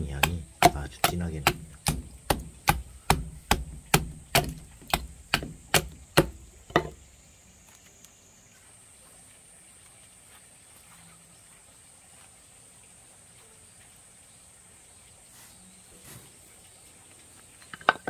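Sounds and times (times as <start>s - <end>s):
hatchet chopping wood: 0.0s - 7.0s.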